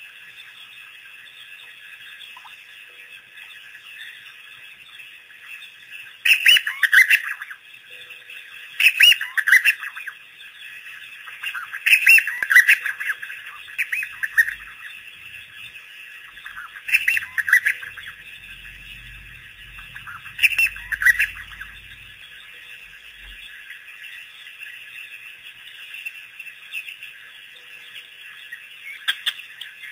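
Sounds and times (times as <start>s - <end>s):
wild dogs twittering: 11.3s - 23.8s.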